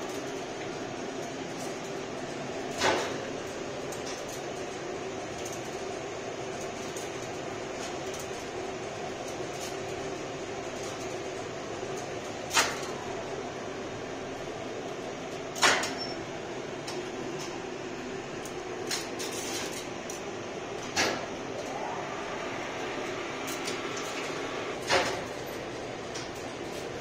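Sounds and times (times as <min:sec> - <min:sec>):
machine-room hum: 0:00.0 - 0:27.0
rising whine: 0:21.4 - 0:24.8
relays clacking: 0:23.0 - 0:27.0.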